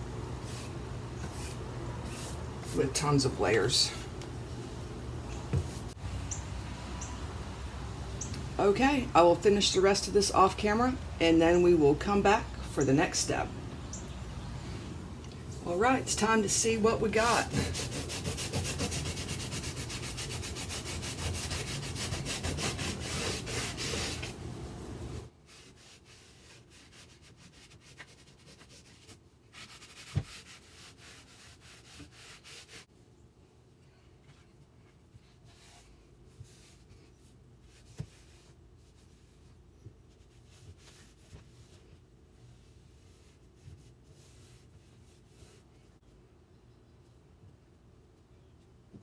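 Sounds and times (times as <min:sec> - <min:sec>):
rag rubbing on painted wood: 0:16.2 - 0:24.4, 0:25.5 - 0:32.9.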